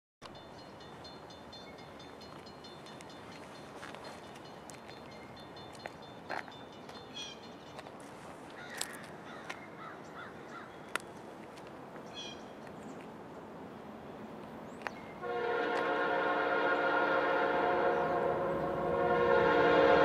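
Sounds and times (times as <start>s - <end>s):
distant locomotive air horn: 15.2s - 20.0s.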